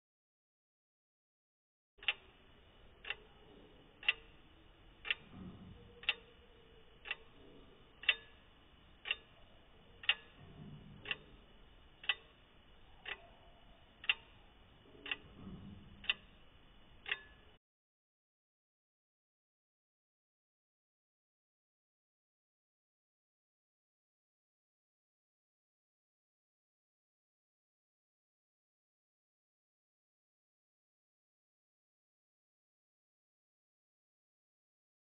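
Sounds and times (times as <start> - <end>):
pocket watch ticking: 2.0 - 10.4, 11.0 - 17.6.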